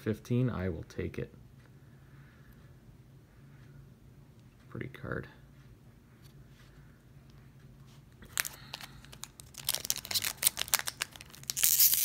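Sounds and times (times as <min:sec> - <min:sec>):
foil wrapper crinkling: 0:08.2 - 0:12.0.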